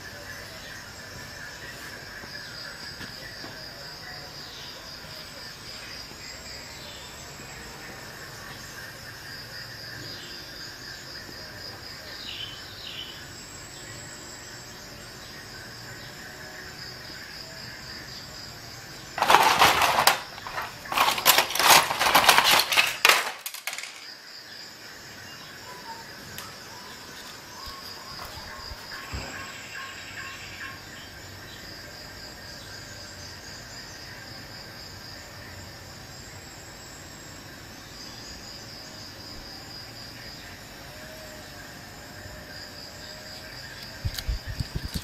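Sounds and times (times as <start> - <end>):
crickets chirping: 0.0 - 45.0
clattering knocks: 19.2 - 24.0.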